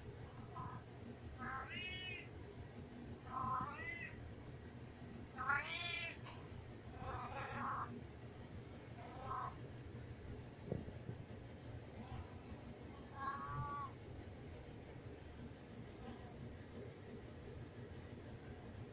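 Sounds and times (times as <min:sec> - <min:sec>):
cat meowing loudly: 0:13.2 - 0:13.9.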